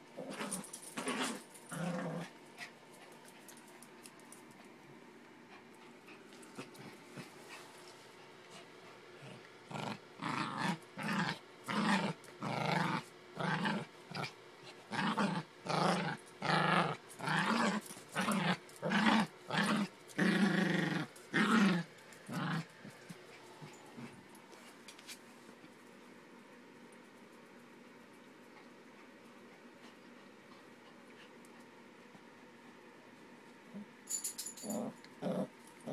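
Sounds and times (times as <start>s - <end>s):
small dog play-growling: 0.1s - 4.6s, 5.5s - 7.9s, 8.5s - 25.1s, 33.6s - 34.0s, 34.6s - 35.9s.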